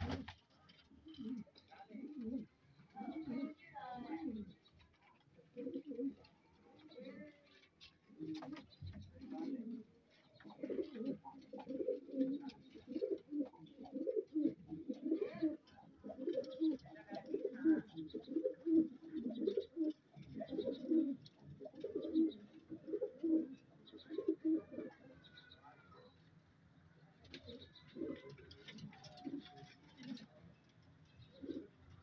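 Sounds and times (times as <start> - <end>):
pigeons cooing: 0.0 - 26.1, 27.2 - 32.0.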